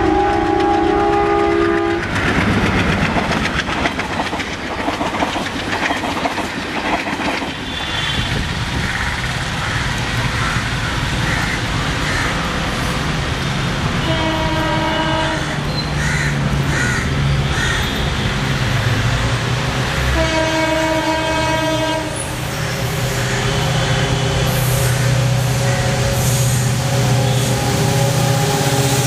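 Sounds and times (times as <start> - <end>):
locomotive horn blasts: 0.0 - 2.1, 14.0 - 15.4, 20.2 - 22.3, 23.3 - 29.0.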